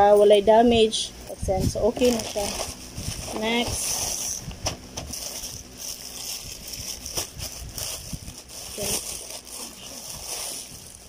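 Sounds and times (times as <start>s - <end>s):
plastic bag rustling and crinkling: 1.5s - 11.0s.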